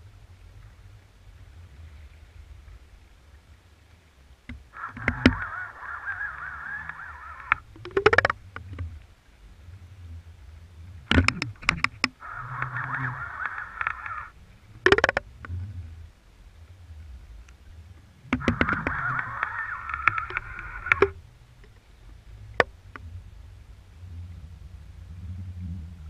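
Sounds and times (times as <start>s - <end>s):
low rumble: 0.0s - 26.0s
sharp clicks and knocks: 4.5s - 5.4s, 6.9s - 8.9s, 11.1s - 12.7s, 14.8s - 15.6s, 18.3s - 21.8s
harsh wavering squeals: 4.7s - 8.3s, 12.2s - 15.2s, 18.4s - 21.2s.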